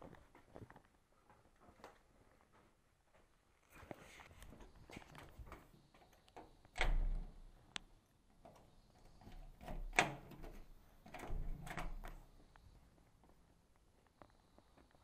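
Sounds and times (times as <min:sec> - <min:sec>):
door clunks and clicks: 0:06.3 - 0:07.4, 0:08.4 - 0:12.3.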